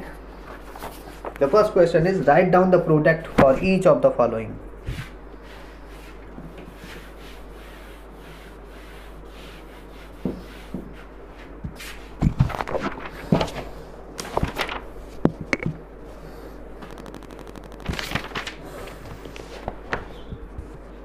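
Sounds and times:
duster wiping a whiteboard: 4.8 - 12.2.

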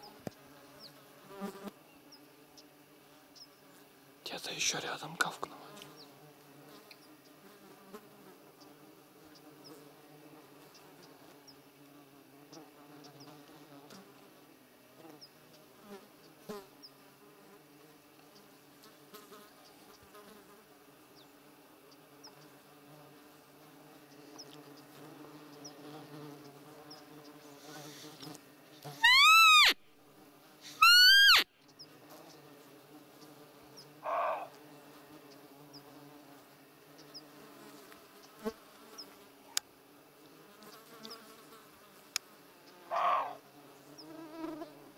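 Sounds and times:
insects buzzing: 0.0 - 44.9
whistled deer call peep: 29.0 - 29.8, 30.7 - 31.4, 34.0 - 34.5, 42.9 - 43.4.

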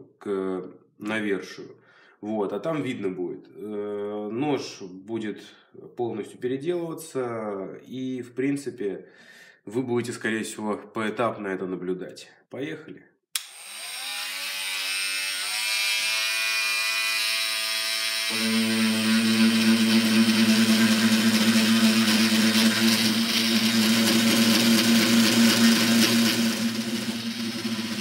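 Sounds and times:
blade sawing into wood: 13.4 - 28.0
multi-tool motor whine: 13.4 - 28.0.

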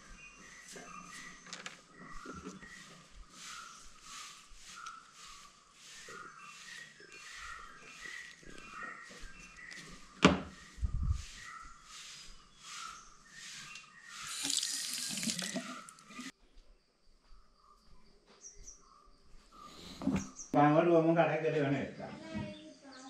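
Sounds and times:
tap running into washbasin: 14.3 - 16.3.

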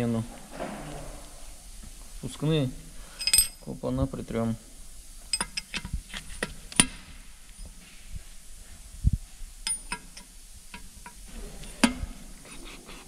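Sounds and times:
metal tools clinking: 3.1 - 3.7.

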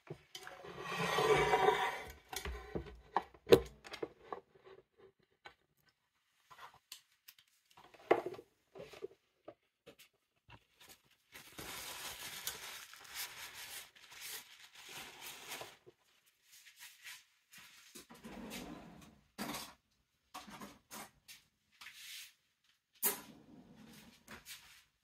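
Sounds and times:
crinkly rustling: 10.6 - 18.0.

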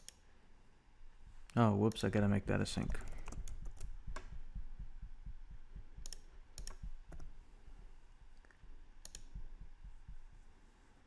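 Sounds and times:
computer mouse clicks: 0.0 - 0.2, 2.8 - 4.4, 6.0 - 7.3, 8.4 - 9.4
faint low thuds: 2.5 - 10.5.

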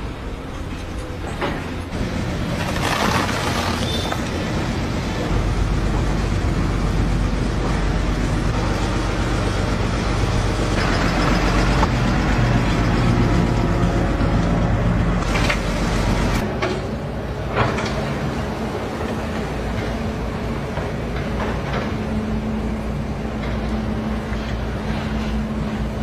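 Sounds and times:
diesel engine running: 0.0 - 16.5.

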